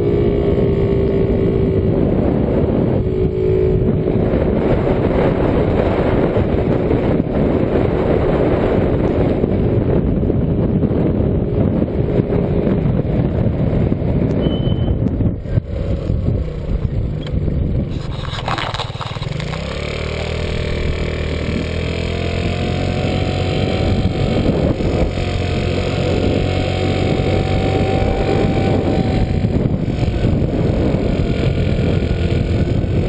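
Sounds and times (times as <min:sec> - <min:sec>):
wind rushing over microphone: 0:00.0 - 0:33.0
scooter engine running: 0:15.4 - 0:33.0.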